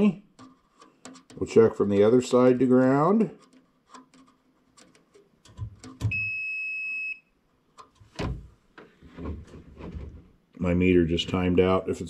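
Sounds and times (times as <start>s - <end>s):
test probes clicking and knocking: 0.3s - 2.6s, 3.3s - 6.4s, 7.7s - 8.9s
high-pitched multimeter beep: 6.1s - 7.3s.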